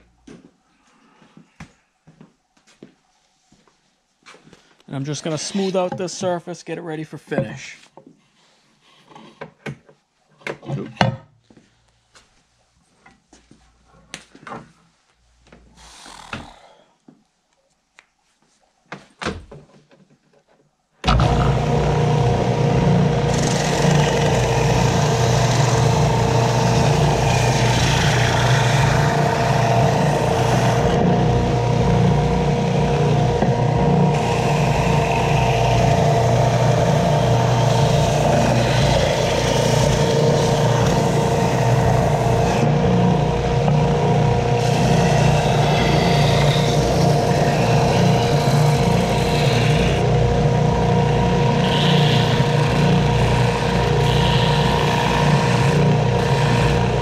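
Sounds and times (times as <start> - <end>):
belt sander running: 21.0 - 57.0.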